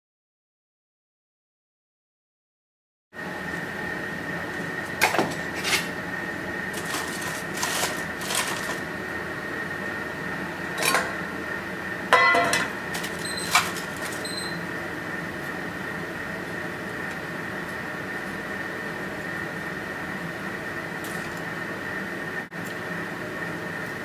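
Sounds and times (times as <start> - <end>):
steady high-pitched hum: 3.2 - 24.0
knife and metal tray clattering: 5.0 - 5.9, 6.7 - 8.8, 10.8 - 11.2, 12.1 - 14.4
foil unwrapping: 6.6 - 8.9, 12.9 - 14.3.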